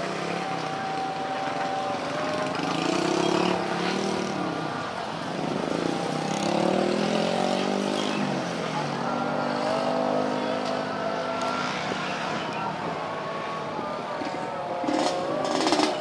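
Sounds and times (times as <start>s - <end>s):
motorcycles driving past: 0.0s - 16.0s.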